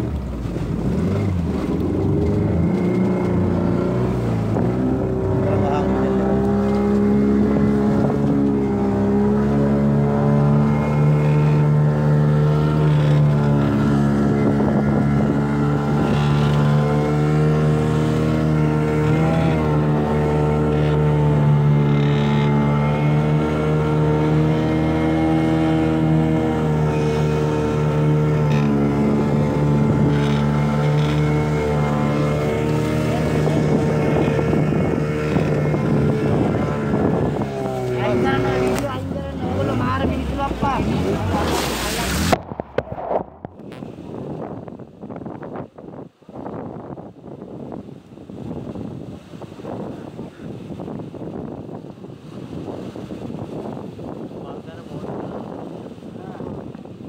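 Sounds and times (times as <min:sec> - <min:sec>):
motorboat engine running: 0:00.0 - 0:57.0.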